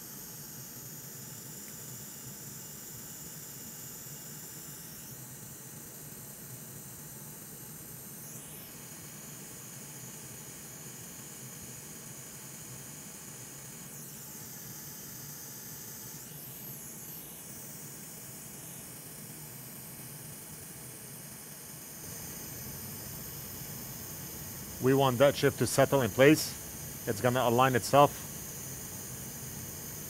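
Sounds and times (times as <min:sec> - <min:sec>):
hot air station hissing: 0:22.0 - 0:30.0.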